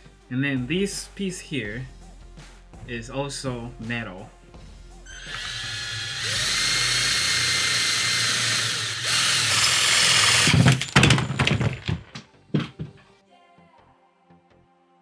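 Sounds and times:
cordless drill whirring into metal: 0:05.1 - 0:10.9
sharp knocks and clatters: 0:10.2 - 0:13.1.

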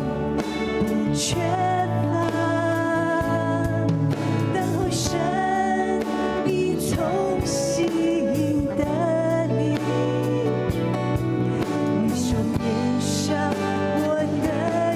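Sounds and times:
instrumental accompaniment: 0:00.0 - 0:14.9
woman singing into a microphone: 0:00.0 - 0:14.9.

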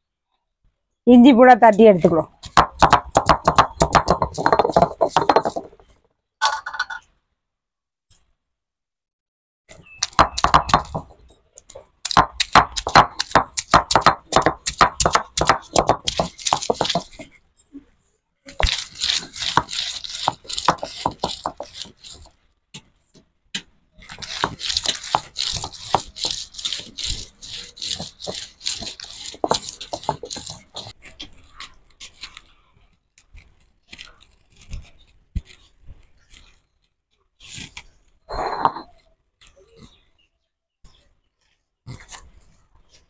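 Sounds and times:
stone roller knocking and scraping: 0:02.4 - 0:07.1, 0:10.0 - 0:17.4, 0:18.6 - 0:22.9, 0:24.0 - 0:31.7, 0:38.3 - 0:39.0.

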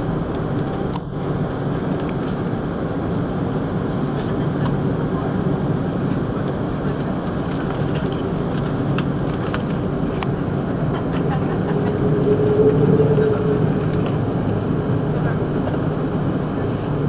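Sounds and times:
airplane cabin rumble: 0:00.0 - 0:17.0.

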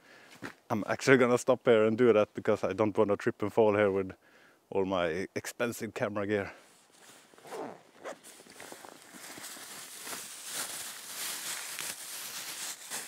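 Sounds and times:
fabric rustling and gear shifting: 0:06.9 - 0:13.0
zipper opening: 0:07.4 - 0:08.3.

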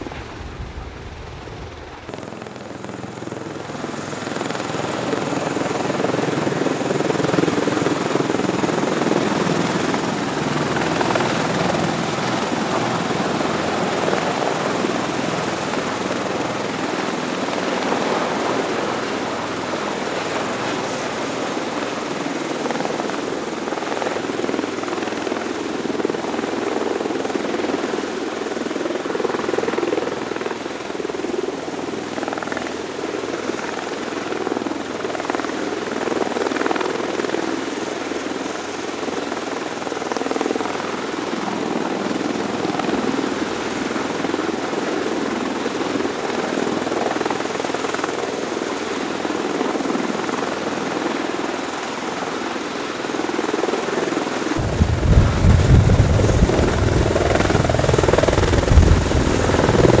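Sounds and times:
hovering tiltrotor aircraft: 0:00.0 - 1:00.0
deep rumble: 0:54.6 - 1:00.0.

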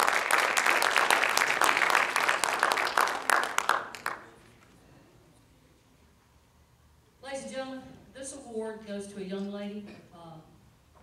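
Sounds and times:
audience clapping: 0:00.0 - 0:04.6.

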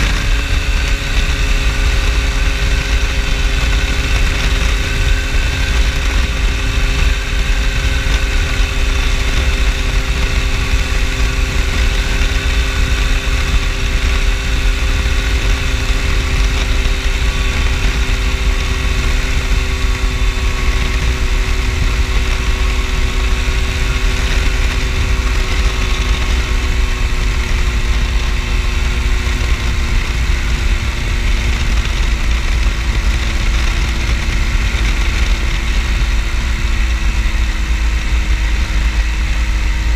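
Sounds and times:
ultralight aircraft engine drone: 0:00.0 - 0:39.9
wind rush on microphone: 0:00.0 - 0:39.9.

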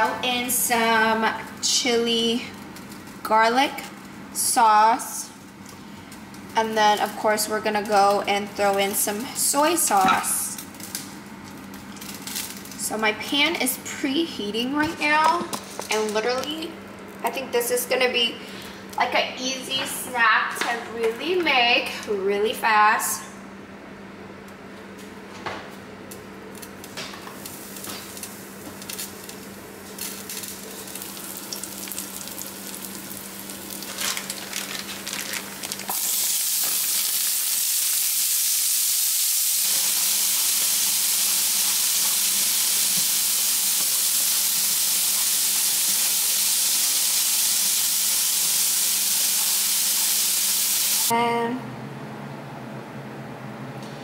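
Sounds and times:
food sizzling in a pan: 0:27.3 - 0:51.1.

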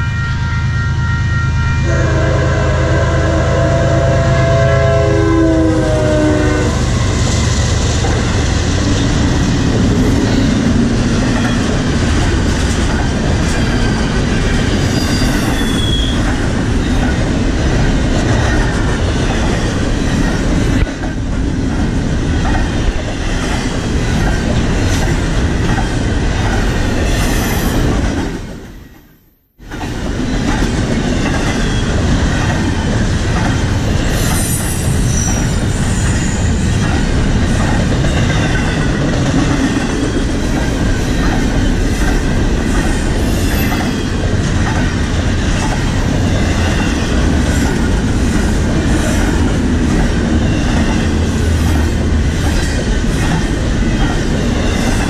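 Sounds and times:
freight train wheels rumbling on rail: 0:00.0 - 0:55.0
high wheel squeals: 0:14.6 - 0:17.0.

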